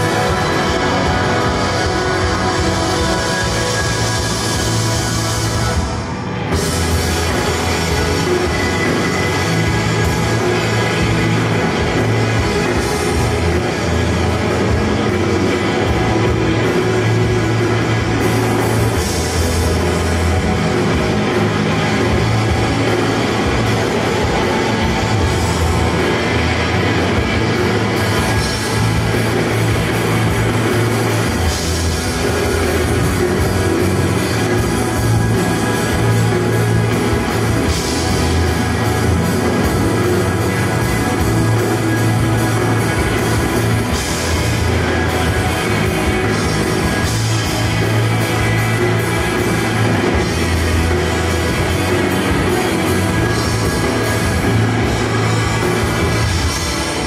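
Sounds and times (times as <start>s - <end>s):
drum kit: 0.0s - 57.0s
electric guitar: 0.0s - 57.0s.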